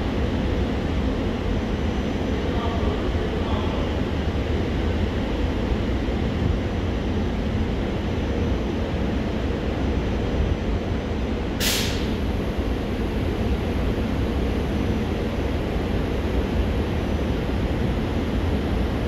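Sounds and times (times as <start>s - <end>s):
freight train wheels rumbling: 0.0s - 19.0s
air hiss: 11.6s - 12.2s.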